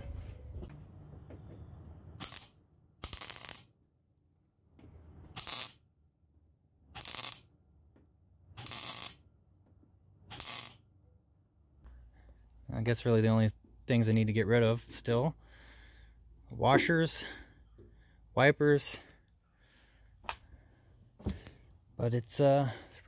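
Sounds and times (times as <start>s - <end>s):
welder arc bursts: 2.2s - 3.7s, 5.3s - 5.8s, 6.9s - 7.5s, 8.6s - 9.2s, 10.3s - 10.8s.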